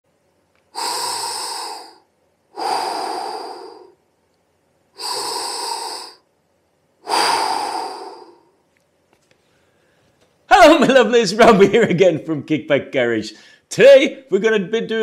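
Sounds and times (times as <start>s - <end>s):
man breathing heavily: 0.7s - 4.0s, 5.0s - 6.3s, 7.0s - 8.6s.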